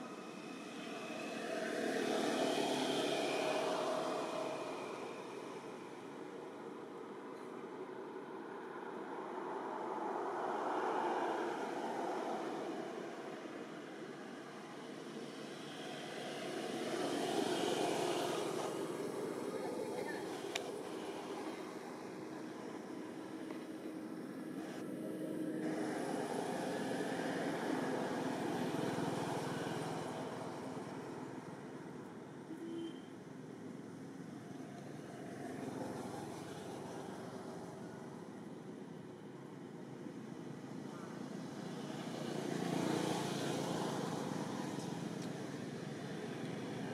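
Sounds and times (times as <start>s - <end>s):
distant engine hum: 0.0s - 33.0s
passing traffic rushing: 0.0s - 46.9s.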